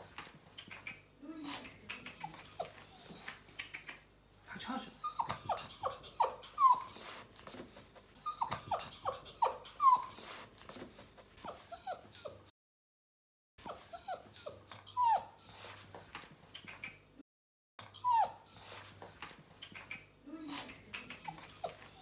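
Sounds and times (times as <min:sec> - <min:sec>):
puppy whimpering: 0:01.2 - 0:03.4, 0:04.8 - 0:07.3, 0:08.2 - 0:10.5, 0:11.4 - 0:12.5, 0:13.6 - 0:15.8, 0:17.8 - 0:18.9, 0:20.3 - 0:22.0.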